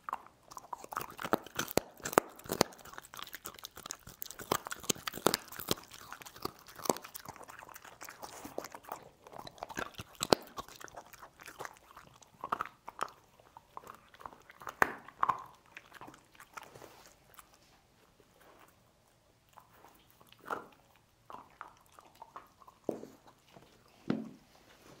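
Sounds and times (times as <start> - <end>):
dog chewing bones: 0.0 - 24.2
bone cracking: 0.7 - 8.8, 9.6 - 13.2.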